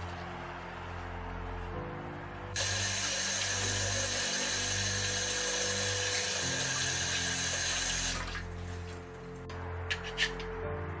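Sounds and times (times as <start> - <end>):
tap water running: 2.6 - 8.5.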